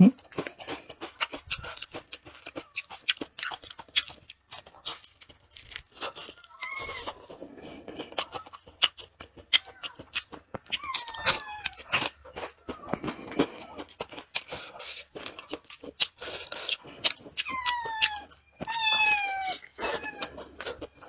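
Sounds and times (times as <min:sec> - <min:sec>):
crunchy chewing: 0:00.1 - 0:21.0
cat meowing: 0:06.4 - 0:07.2, 0:10.7 - 0:12.0, 0:17.4 - 0:20.9.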